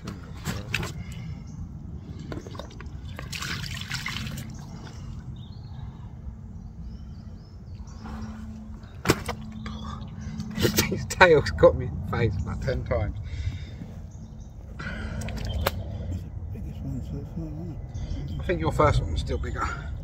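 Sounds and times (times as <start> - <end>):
water splashing from bucket: 2.4 - 4.9.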